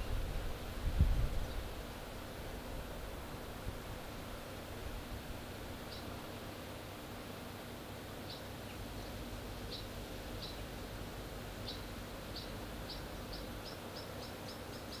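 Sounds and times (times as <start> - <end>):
background hiss and low hum: 0.0 - 15.0
bird chirping: 5.8 - 6.2, 8.2 - 10.7, 11.6 - 15.0.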